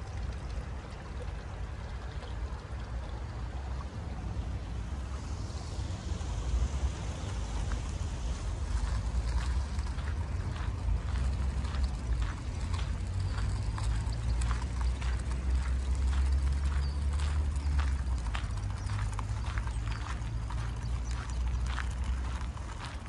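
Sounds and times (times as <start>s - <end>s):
steady low rumble: 0.0s - 23.0s
clopping steps on pavement: 8.8s - 23.0s.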